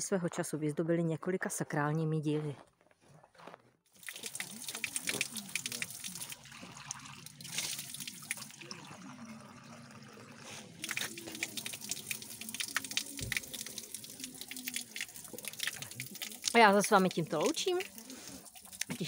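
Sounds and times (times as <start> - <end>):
cup filling with water: 3.9 - 19.0
water pouring onto wet stone: 3.9 - 19.0.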